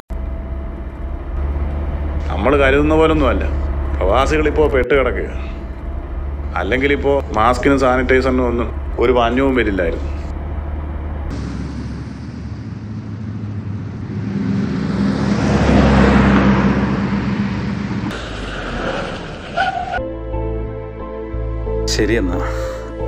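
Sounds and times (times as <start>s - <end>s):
vehicle driving past: 0.1s - 20.1s
soft music: 20.0s - 23.0s.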